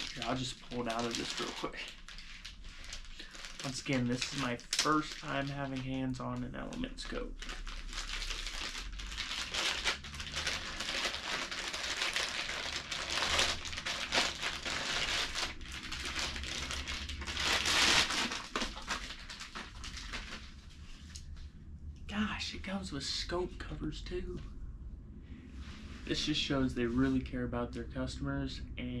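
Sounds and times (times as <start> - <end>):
packaging wrap crinkling: 0.0 - 21.2.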